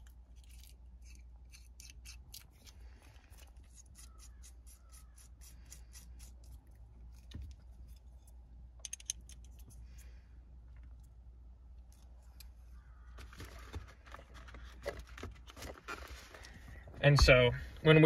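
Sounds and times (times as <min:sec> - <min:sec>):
low steady hum: 0:00.0 - 0:18.0
allen wrench clicking on metal: 0:08.8 - 0:09.6.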